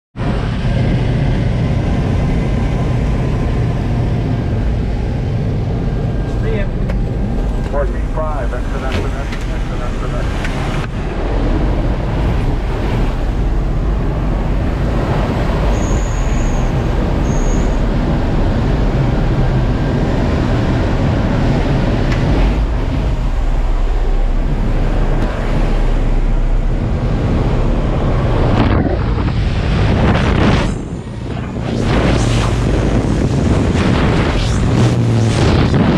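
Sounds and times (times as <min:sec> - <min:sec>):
propeller plane engine drone: 0:00.2 - 0:35.9
wind rushing through doorway: 0:00.2 - 0:35.9.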